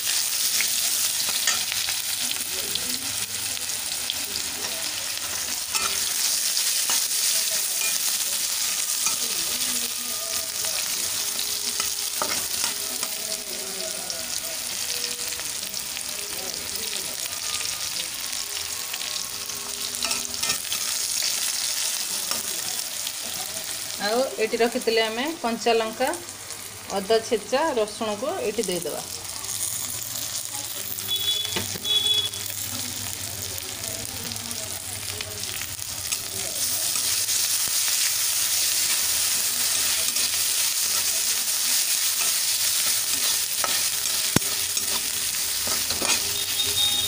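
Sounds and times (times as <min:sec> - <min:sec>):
onions sizzling in hot fat: 0:00.0 - 0:47.0
metal spatula scraping pan: 0:42.1 - 0:47.0.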